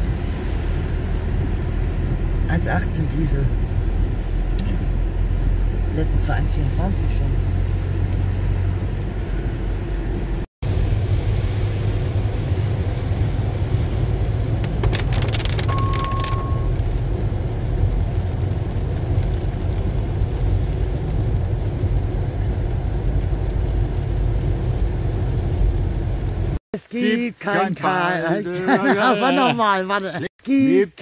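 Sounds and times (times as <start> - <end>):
car engine and tyre noise: 0.0 - 26.6
rain on windscreen: 0.0 - 26.6
short beep: 15.6 - 16.8.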